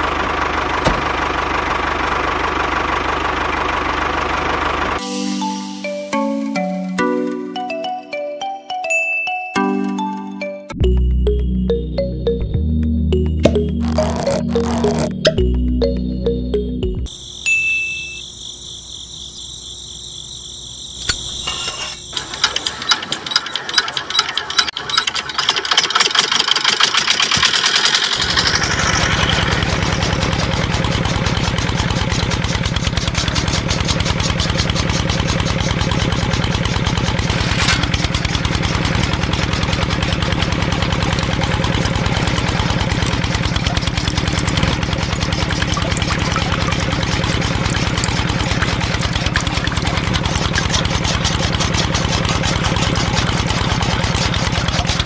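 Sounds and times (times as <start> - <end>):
small diesel engine chugging: 0.0 - 5.6, 21.0 - 55.0.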